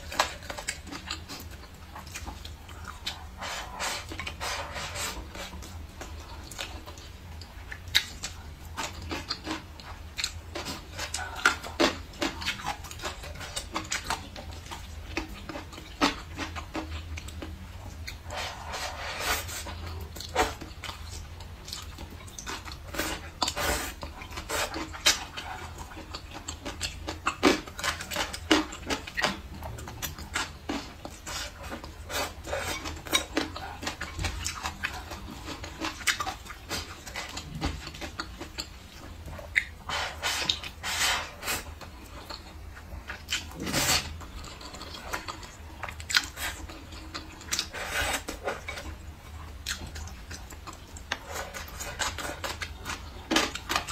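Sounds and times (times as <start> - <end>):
chewing and wet mouth sounds: 0.0 - 53.9
noodles slurping: 21.8 - 53.9.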